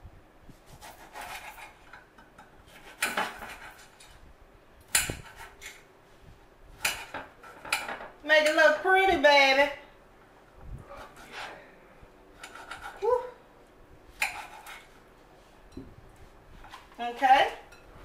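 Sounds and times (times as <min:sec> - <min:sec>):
faint knife scraping: 0:00.6 - 0:02.1, 0:02.7 - 0:04.2, 0:10.8 - 0:11.7, 0:12.4 - 0:13.2, 0:14.1 - 0:15.7.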